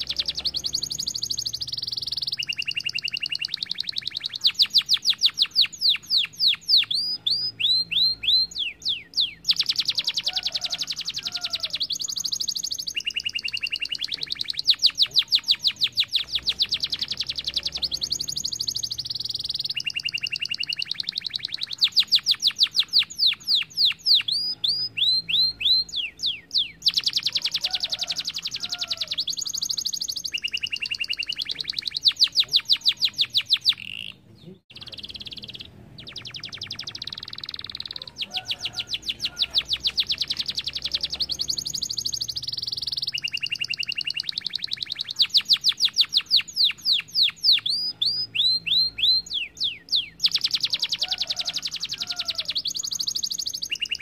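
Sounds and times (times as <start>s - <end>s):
canary singing trills: 0.0s - 54.0s.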